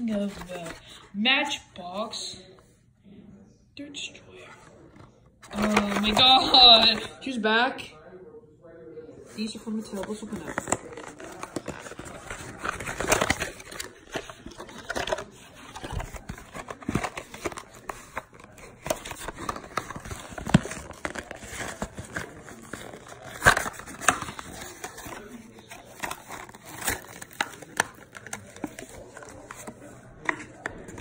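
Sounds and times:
plastic packaging crinkling and ripping: 10.2s - 31.0s.

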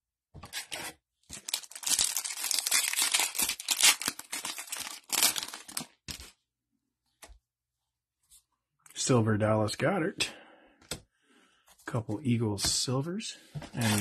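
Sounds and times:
wrapper being torn and crinkled: 0.5s - 6.3s.

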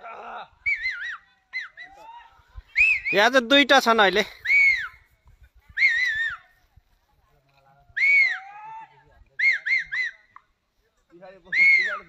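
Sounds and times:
high whistle-like calls: 2.7s - 3.3s, 4.4s - 5.1s, 5.7s - 6.5s, 7.9s - 8.4s, 9.4s - 10.5s, 11.5s - 12.0s.

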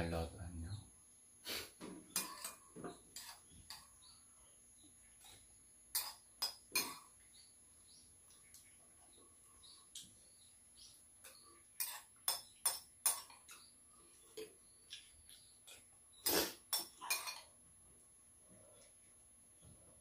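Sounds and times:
spoons clinking in ceramic bowls: 2.1s - 3.9s, 5.2s - 7.1s, 11.2s - 13.7s, 16.6s - 17.6s.

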